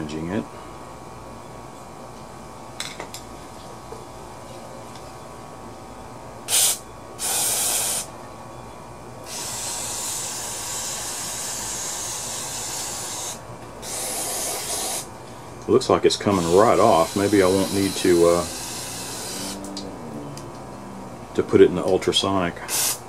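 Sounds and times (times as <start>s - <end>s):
aerosol can spray hissing: 6.5s - 8.1s, 22.7s - 23.0s.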